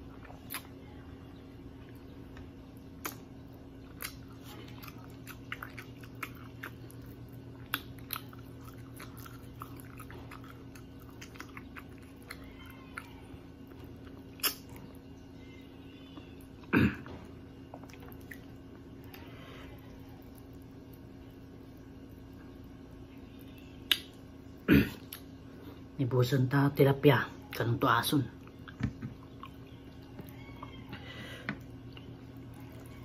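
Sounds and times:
low steady hum: 0:00.0 - 0:33.0
chewing crunchy fried fish: 0:01.6 - 0:26.0, 0:28.4 - 0:33.0
wet mouth clicks: 0:03.0 - 0:03.2, 0:14.4 - 0:14.8, 0:23.9 - 0:24.2.

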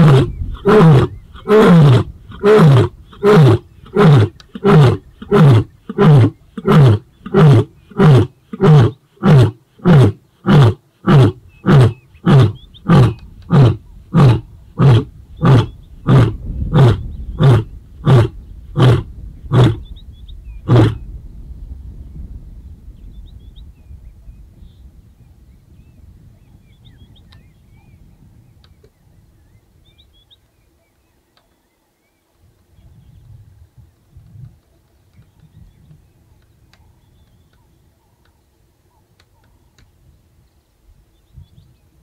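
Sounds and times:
lion roaring: 0:00.0 - 0:19.8.

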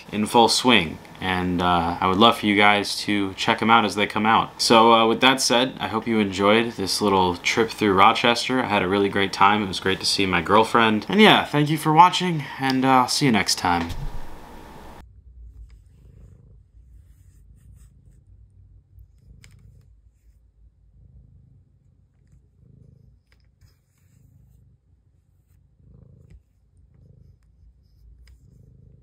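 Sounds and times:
cat purring: 0:13.8 - 0:29.0.

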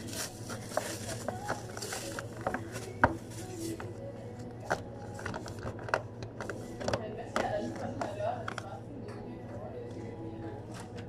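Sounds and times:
plastic bag rustling: 0:00.0 - 0:04.0.

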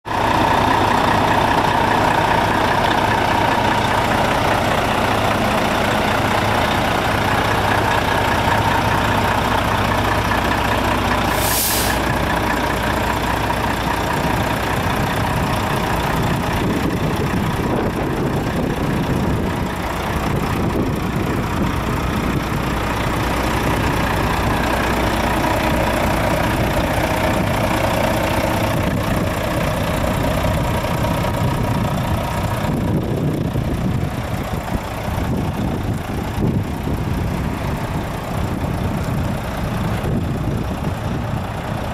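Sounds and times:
diesel truck engine idling: 0:00.1 - 0:41.9
air hiss: 0:11.3 - 0:12.1.

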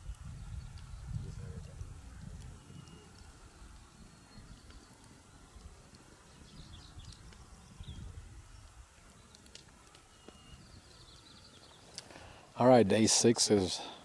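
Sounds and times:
wind rumble on microphone: 0:00.0 - 0:04.8, 0:06.4 - 0:09.0
bird chirps: 0:06.2 - 0:09.4, 0:10.1 - 0:12.0.

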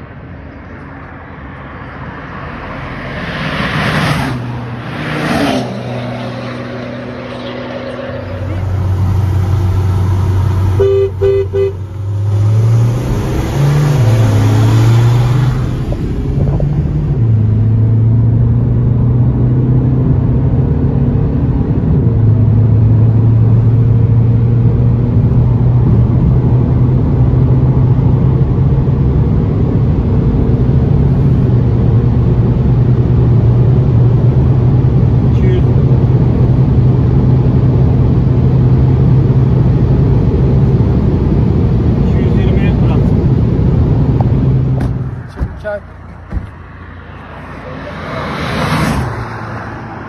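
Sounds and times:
diesel engine at full throttle: 0:00.0 - 0:50.0
two-tone car horn honks: 0:10.8 - 0:11.8.

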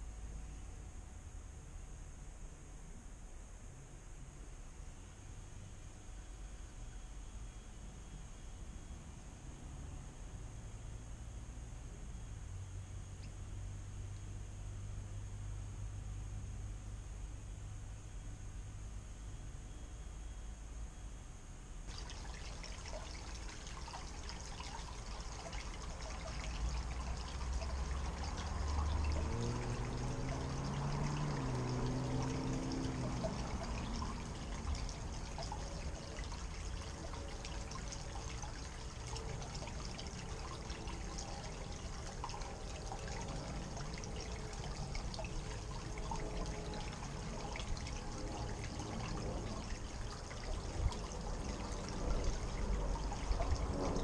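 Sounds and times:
water trickling into pond: 0:21.8 - 0:54.0
low drone rising in pitch: 0:26.6 - 0:37.8, 0:42.0 - 0:54.0.

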